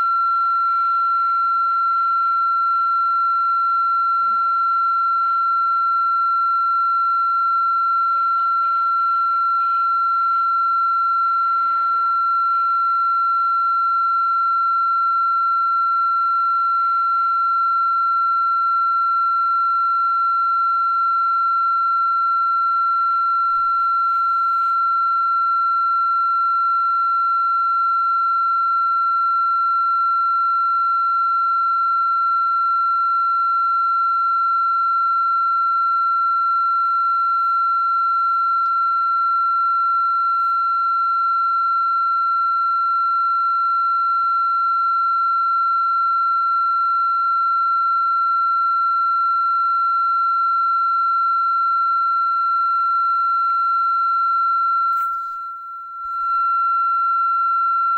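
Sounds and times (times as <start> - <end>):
high electronic tone: 54.9 - 57.9.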